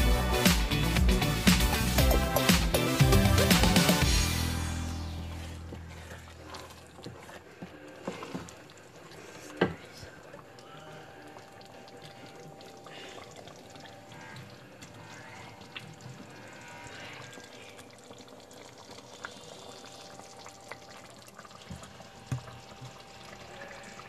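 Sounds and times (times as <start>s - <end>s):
sauce bubbling in a pot: 3.3s - 24.0s
wooden spoon stirring and knocking: 5.7s - 10.2s.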